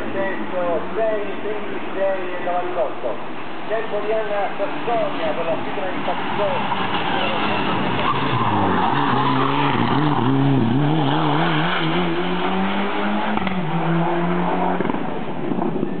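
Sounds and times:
rally car engine revving: 5.0 - 16.0.

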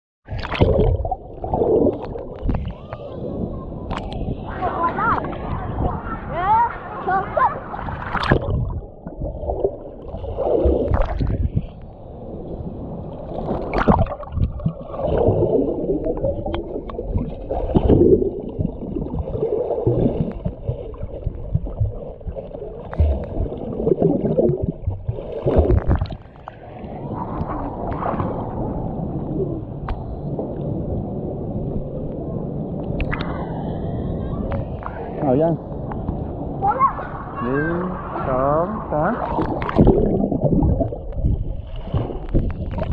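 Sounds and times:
water washing around camera: 0.2 - 42.9
underwater gurgling bubbles: 0.3 - 6.0, 7.9 - 32.2, 39.2 - 42.9.

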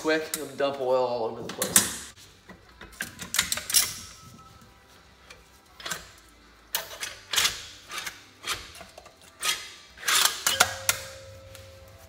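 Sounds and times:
steady ringing tone: 10.5 - 12.0.

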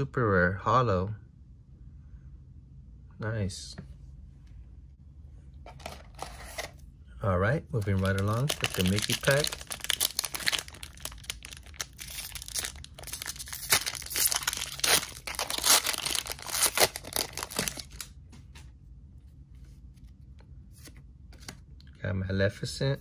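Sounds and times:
cards being handled: 7.7 - 18.7, 19.6 - 21.8
foil wrapper tearing and crinkling: 7.8 - 18.1.

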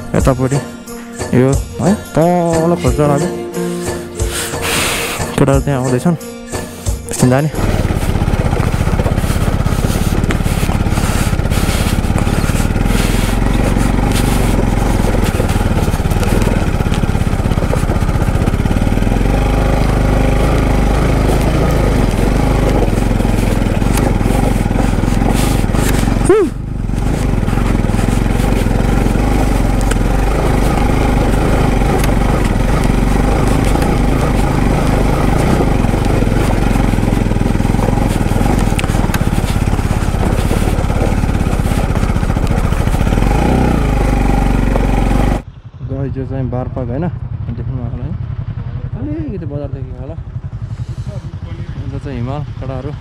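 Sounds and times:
motorcycle engine running: 0.0 - 53.0
bike rattling over stones: 5.3 - 45.4.

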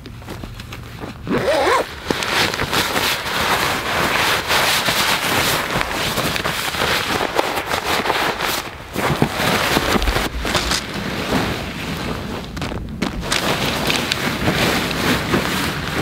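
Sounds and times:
tent fabric rustling: 0.0 - 16.0
zipper opening: 1.0 - 3.1.

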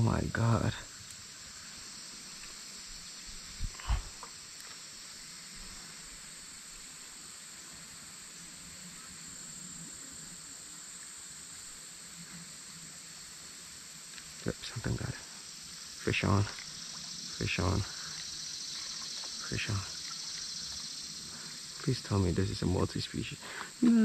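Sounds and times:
high-pitched insect chorus: 0.0 - 24.0.

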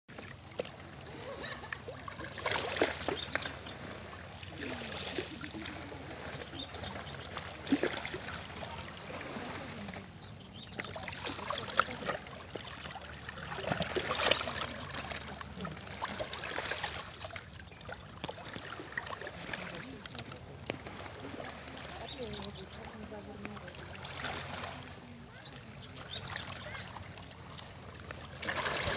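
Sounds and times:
waves lapping on pebble shore: 2.3 - 28.9.

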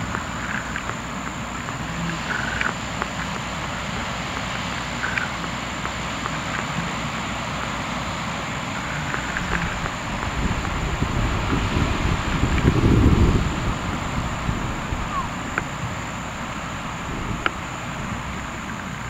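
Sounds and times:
ocean surf: 0.0 - 19.0
wind on microphone: 8.7 - 19.0.

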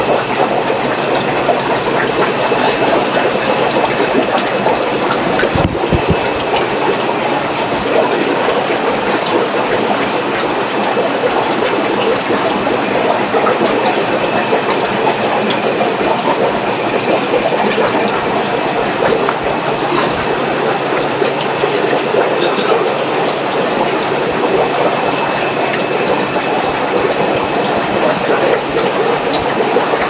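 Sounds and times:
air bubbling in aquarium: 0.0 - 30.0
air pumps running: 0.0 - 30.0.

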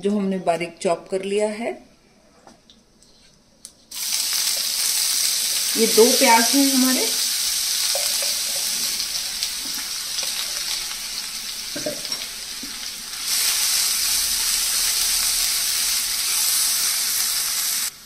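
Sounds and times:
onions sizzling in oil: 3.9 - 18.0
spatula stirring in pan: 7.6 - 10.8.

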